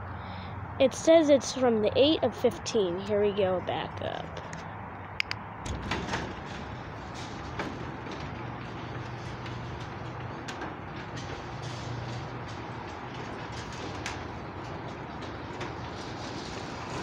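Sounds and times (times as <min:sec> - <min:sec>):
garage door opener motor hum: 0:05.6 - 0:17.0
garage door rumbling on tracks: 0:05.6 - 0:17.0.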